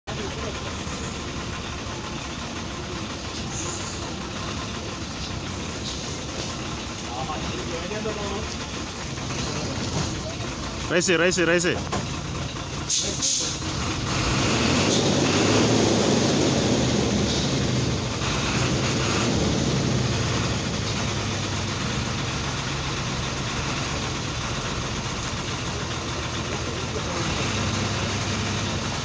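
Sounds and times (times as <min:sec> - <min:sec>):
vehicle engine idling: 0:00.0 - 0:29.0.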